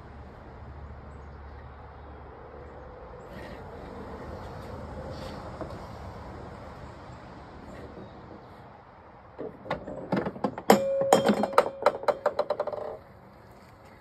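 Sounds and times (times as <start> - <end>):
golf ball knocking through wooden maze: 9.4 - 13.0.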